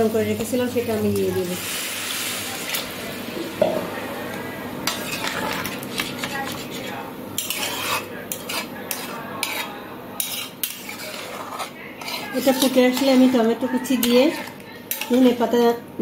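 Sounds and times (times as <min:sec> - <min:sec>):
spatula scraping and clinking in pan: 0:04.8 - 0:15.4.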